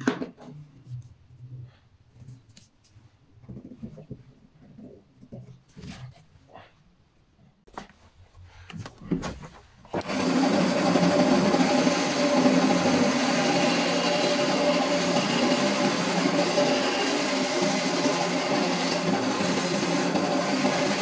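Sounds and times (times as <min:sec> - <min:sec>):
faint scrapes and taps: 0:00.4 - 0:06.7
band saw cutting wood: 0:10.0 - 0:21.0.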